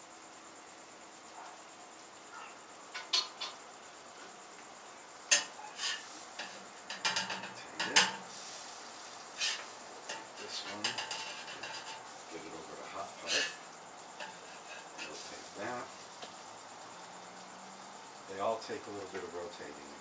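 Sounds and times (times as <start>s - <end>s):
spatula scraping on griddle: 5.3s - 16.4s.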